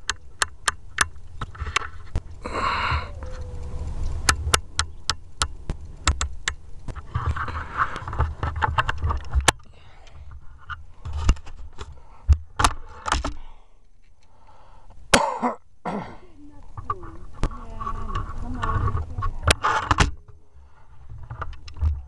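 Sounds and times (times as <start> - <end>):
low rubbing and rumbling: 1.2 - 9.4, 16.4 - 22.0.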